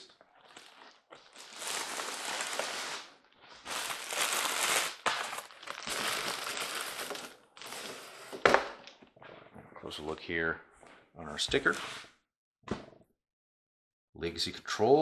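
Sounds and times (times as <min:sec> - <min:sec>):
plastic bag crinkling: 0:00.4 - 0:08.1.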